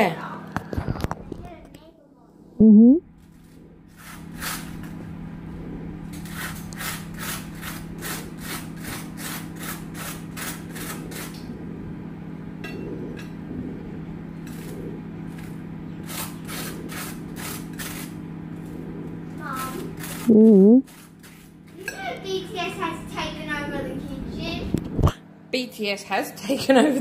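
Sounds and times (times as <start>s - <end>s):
low hum: 0.2s - 21.6s
rapid scraping strokes: 3.3s - 12.0s, 14.4s - 21.8s.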